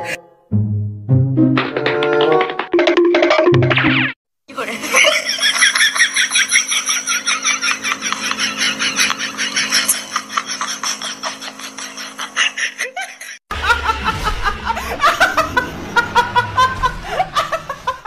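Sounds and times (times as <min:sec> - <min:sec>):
people laughing hard: 0:04.6 - 0:18.0.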